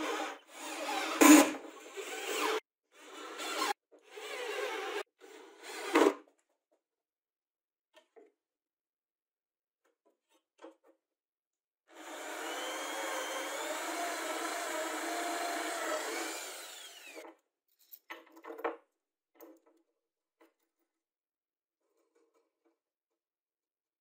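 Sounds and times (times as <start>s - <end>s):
electric drill boring wood: 0.0s - 5.0s, 11.9s - 17.2s.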